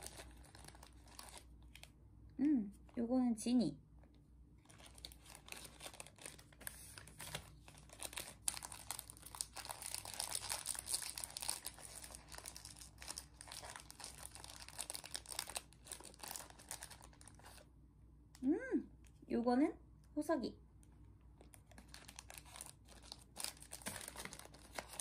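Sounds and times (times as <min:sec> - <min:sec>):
packaging wrapper crackling: 0:00.0 - 0:02.0, 0:04.6 - 0:17.6, 0:21.4 - 0:25.0.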